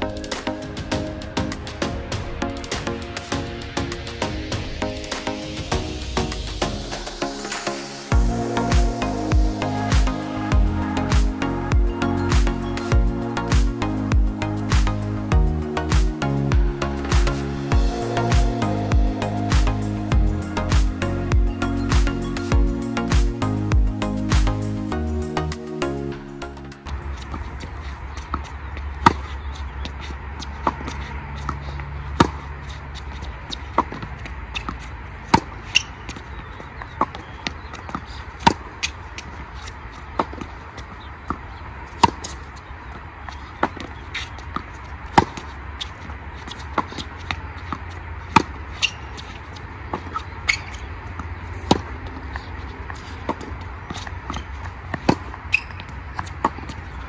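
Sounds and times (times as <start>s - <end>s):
steady low rumble: 0.0s - 28.8s
tennis balls struck by racquets: 8.8s - 15.0s, 15.9s - 23.4s, 24.3s - 24.6s, 28.2s - 42.6s, 43.3s - 57.0s
tennis balls bouncing on hard court: 13.5s - 15.0s, 15.9s - 17.4s, 28.2s - 42.5s, 43.3s - 57.0s.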